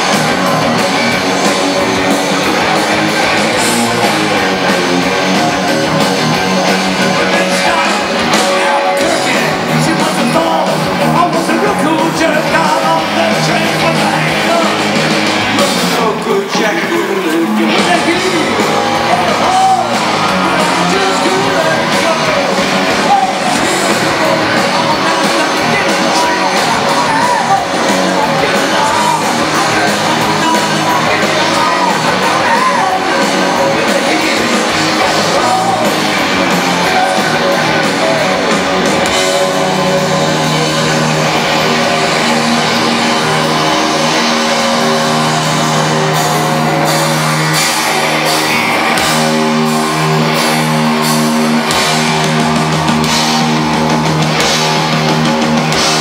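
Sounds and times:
drums: 0.0s - 56.0s
electric guitars: 0.0s - 56.0s
person singing: 7.0s - 51.7s.

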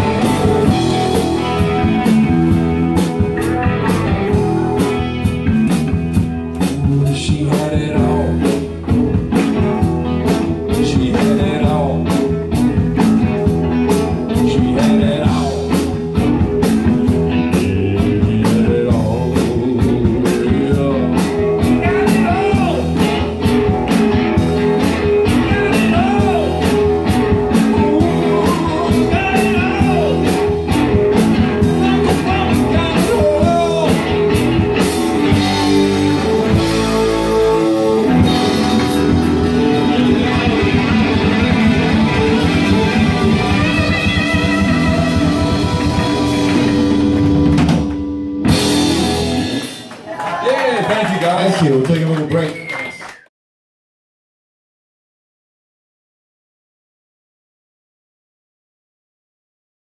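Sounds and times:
electric bass: 0.0s - 50.1s
drum kit: 0.0s - 50.5s
electric guitars: 0.0s - 51.2s
man singing: 6.6s - 8.8s, 10.6s - 12.4s, 13.9s - 23.3s, 25.1s - 34.6s, 37.4s - 41.5s.

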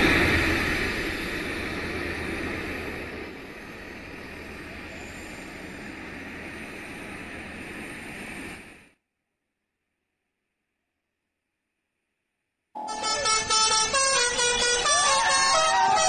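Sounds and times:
jet engines running: 0.0s - 9.0s, 12.8s - 16.0s.

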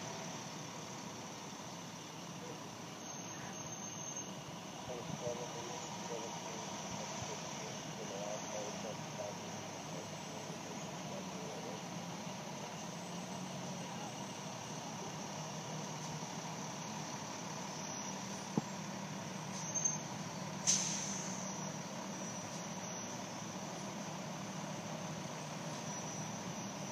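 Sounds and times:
truck engines humming: 0.0s - 26.9s.

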